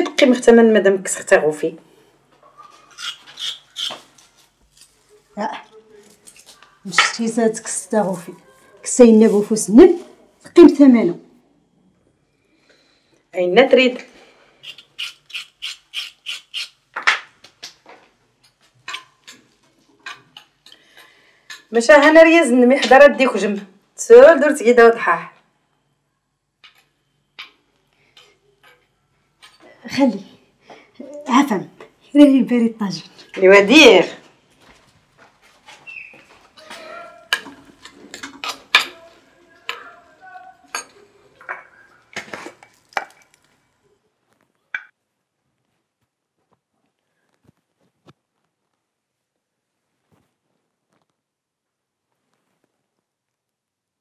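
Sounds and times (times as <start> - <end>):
dishes and cutlery clattering: 36.6 - 39.1, 40.7 - 41.7.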